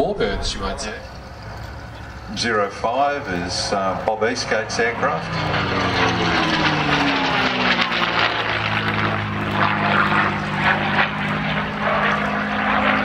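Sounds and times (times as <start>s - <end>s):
propeller plane flying overhead: 0.0s - 13.0s.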